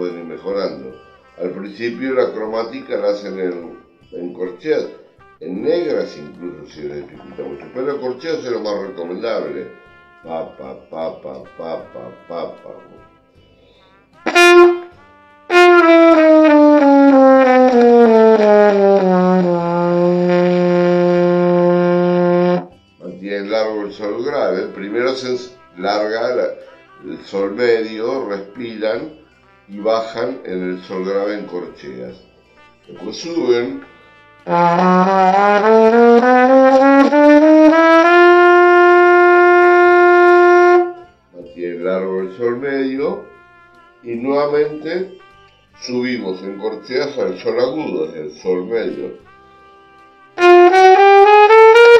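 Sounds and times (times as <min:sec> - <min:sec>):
trumpet playing a scale: 0:00.0 - 0:41.3, 0:42.0 - 0:51.9
breath: 0:13.3 - 0:14.1.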